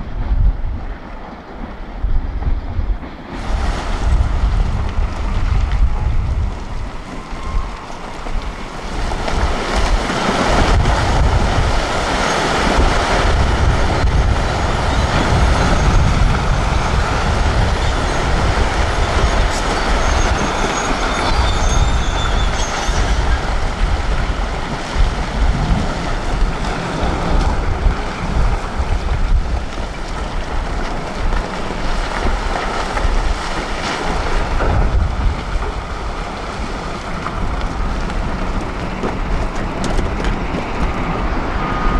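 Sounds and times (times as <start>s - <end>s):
rocks tumbling and clattering: 3.4s - 41.5s.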